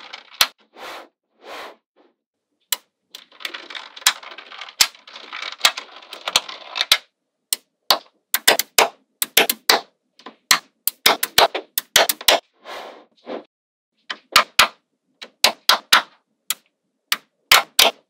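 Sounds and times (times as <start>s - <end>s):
magnetic balls rattling: 0.0s - 0.6s, 3.2s - 7.1s
magnetic balls clicking together: 2.7s - 12.4s, 14.2s - 18.0s.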